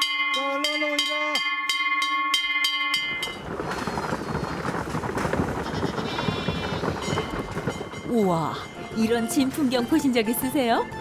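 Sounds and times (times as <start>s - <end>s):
goats running past: 2.9s - 10.1s.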